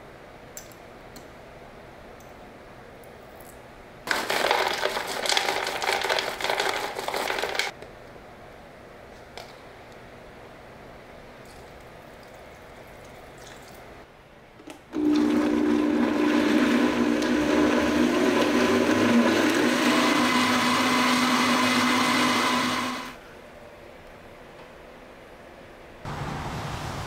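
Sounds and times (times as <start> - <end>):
blender running: 15.0 - 23.2.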